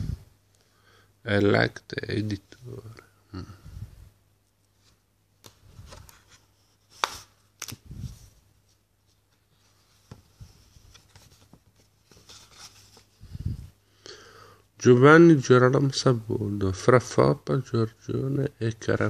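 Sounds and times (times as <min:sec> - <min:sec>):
paper rustling and sliding: 0:04.8 - 0:13.2.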